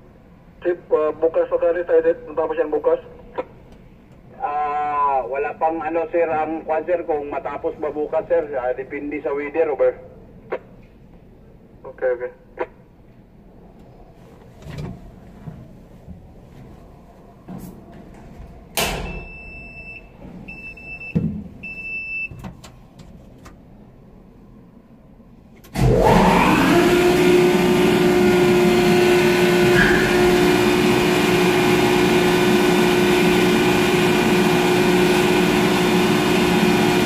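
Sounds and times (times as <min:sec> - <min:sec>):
crane motor whining and humming: 0:25.7 - 0:37.0.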